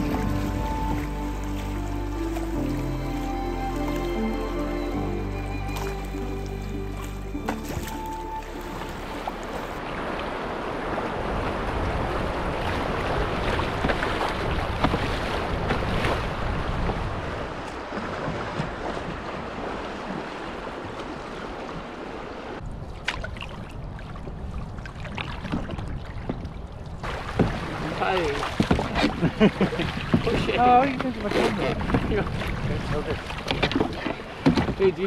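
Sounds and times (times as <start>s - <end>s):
paddle strokes splashing: 0.0s - 35.0s
rushing river water: 0.0s - 35.0s
wind buffeting microphone: 9.4s - 21.9s, 22.6s - 34.8s.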